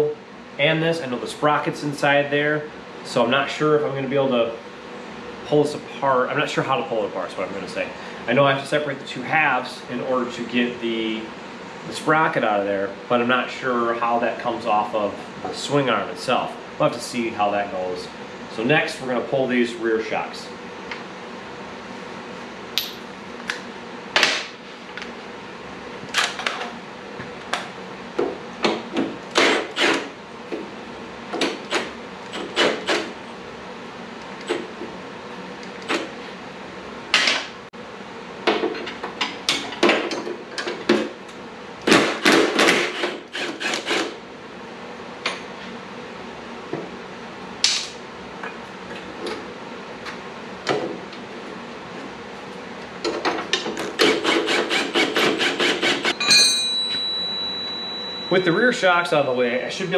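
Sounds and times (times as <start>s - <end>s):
metal tools clattering: 56.2s - 58.6s.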